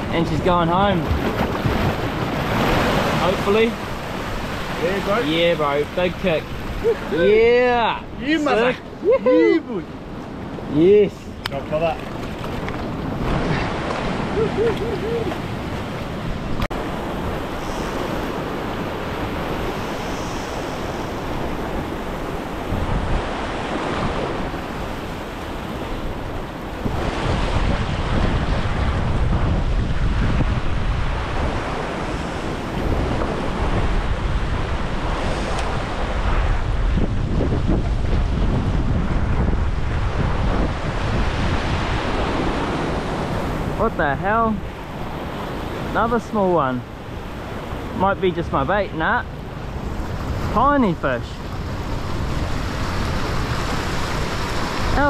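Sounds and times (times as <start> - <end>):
ocean swell washing over rocks: 0.0 - 8.4, 12.3 - 43.8, 49.3 - 55.0
wind buffeting microphone: 0.0 - 55.0.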